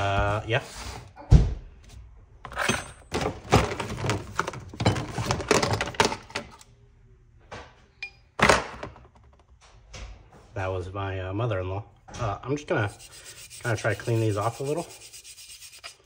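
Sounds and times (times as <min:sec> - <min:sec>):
tools clattering on workbench: 0:02.5 - 0:06.6.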